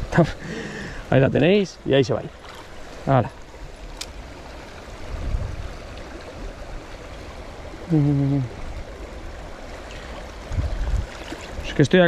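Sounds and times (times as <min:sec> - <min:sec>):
river flowing over stones: 0:00.0 - 0:12.0
person humming: 0:07.9 - 0:08.6.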